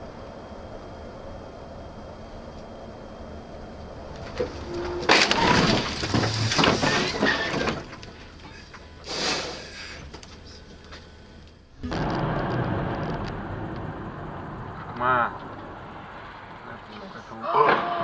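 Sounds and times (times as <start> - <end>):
crunching scraping and rattling: 4.1 - 9.0
car crash: 4.2 - 10.1, 11.8 - 18.0.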